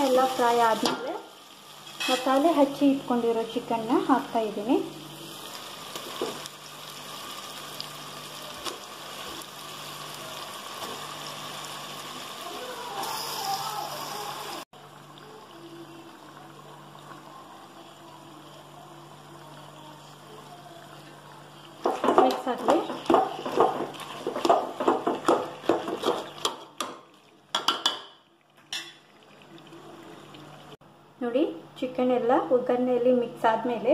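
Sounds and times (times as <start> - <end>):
frying sizzle in oil: 0.0 - 30.8.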